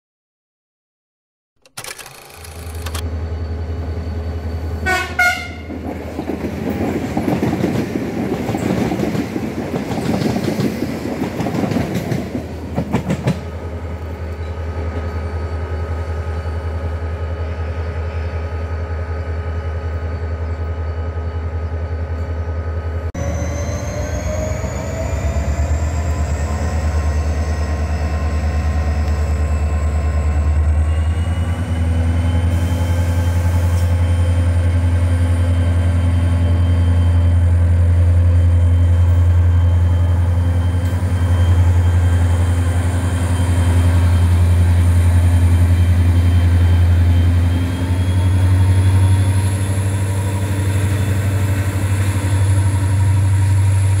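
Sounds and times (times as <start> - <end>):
diesel locomotive engine hum: 1.7 - 54.0
passing train rail noise: 1.7 - 54.0
train horn: 4.8 - 5.7.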